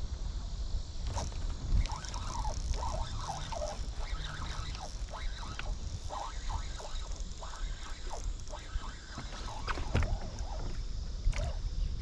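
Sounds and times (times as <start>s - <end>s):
wind rumble: 0.0s - 12.0s
birds calling: 1.8s - 10.8s.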